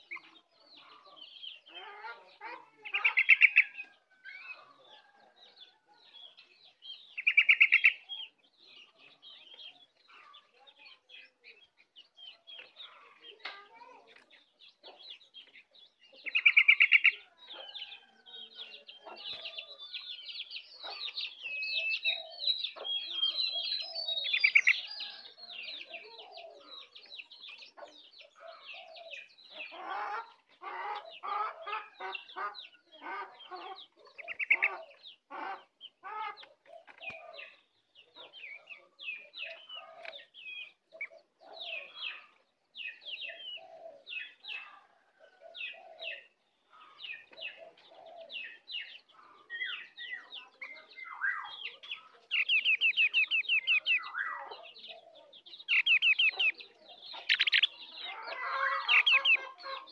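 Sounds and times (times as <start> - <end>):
buzzy bird calls: 0.0 - 59.9
songbird chirping: 0.0 - 59.9.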